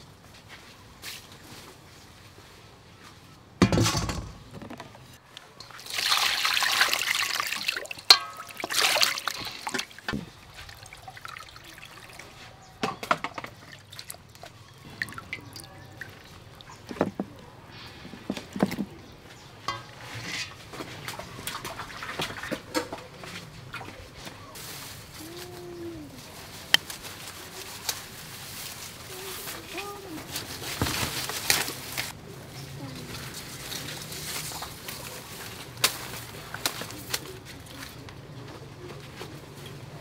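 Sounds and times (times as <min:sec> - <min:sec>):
water poured into metal bowl: 0:05.6 - 0:12.5
splashes and clinks in metal bowl: 0:05.6 - 0:17.2, 0:19.6 - 0:23.1.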